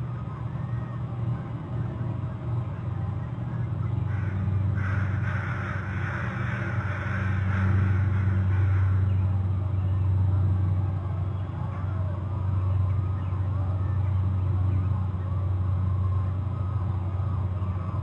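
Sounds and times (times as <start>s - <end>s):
steady low drone: 0.0s - 18.0s.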